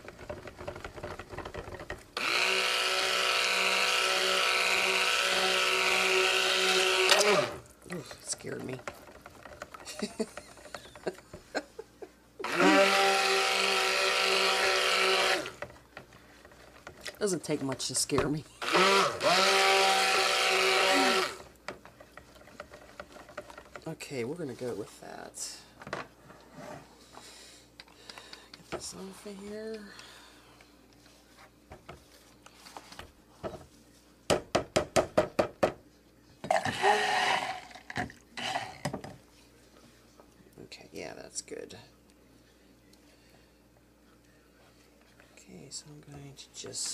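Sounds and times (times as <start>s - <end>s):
stick blender motor running: 0.0s - 11.2s, 12.4s - 15.7s, 18.2s - 21.5s.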